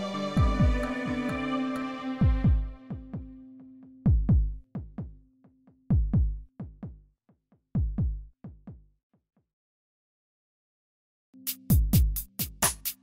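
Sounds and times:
drum machine kick beats: 0.4 - 1.6, 2.2 - 8.9, 11.4 - 13.0.

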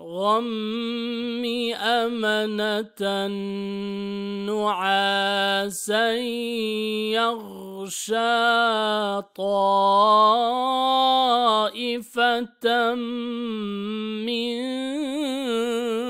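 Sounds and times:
person reciting melodically: 0.0 - 16.0.

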